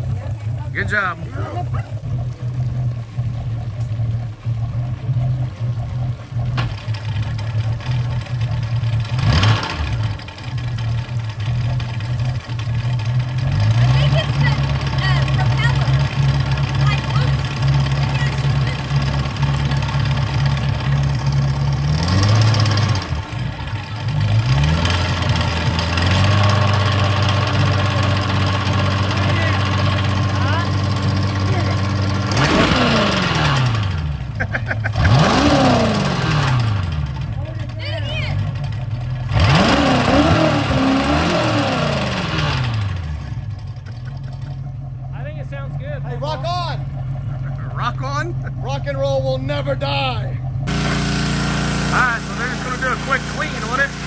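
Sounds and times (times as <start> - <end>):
boat engine running and revving: 0.0 - 54.0.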